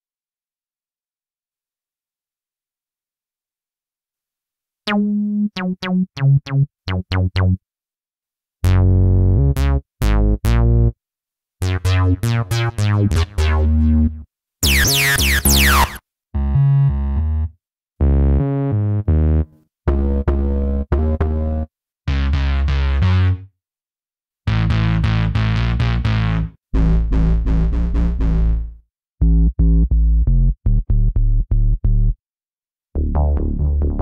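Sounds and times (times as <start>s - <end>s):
acid bass with filter sweeps: 8.6s - 11.0s, 11.6s - 23.4s, 24.5s - 32.2s, 33.0s - 34.0s
staccato synth bass riffs: 11.6s - 16.0s, 24.5s - 32.2s, 33.0s - 34.0s.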